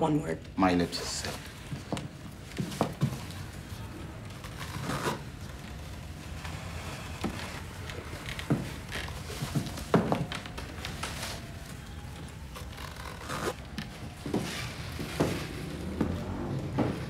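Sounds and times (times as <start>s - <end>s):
boots rustling and scraping: 6.4s - 17.0s.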